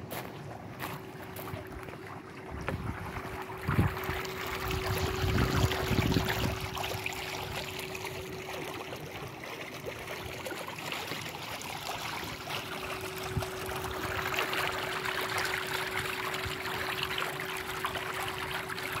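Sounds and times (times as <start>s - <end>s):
pool water trickling and lapping: 0.0s - 19.0s
steady hum: 0.0s - 19.0s
wind buffeting microphone: 2.5s - 7.1s.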